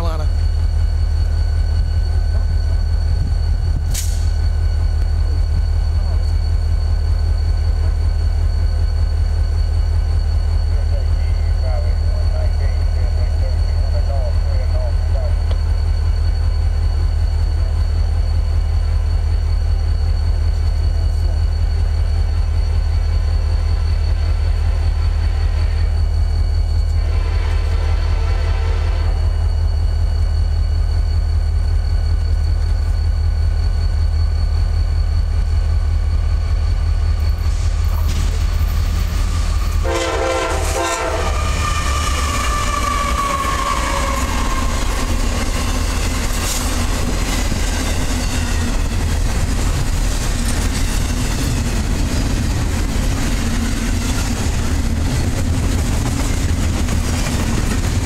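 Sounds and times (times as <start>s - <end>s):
train horn: 26.9s - 29.3s, 39.8s - 45.0s
train wheels clacking on rails: 36.9s - 58.0s.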